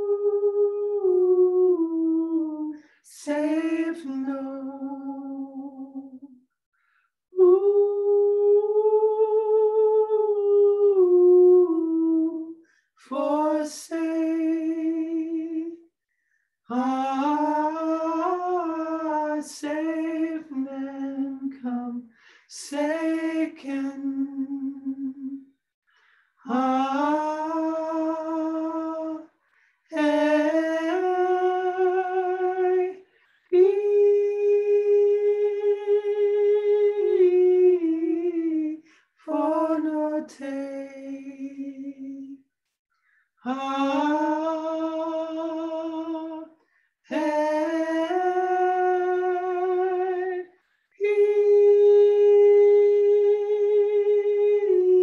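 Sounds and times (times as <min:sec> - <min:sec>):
woman singing unaccompanied: 0:26.4 - 0:29.3, 0:43.4 - 0:46.5.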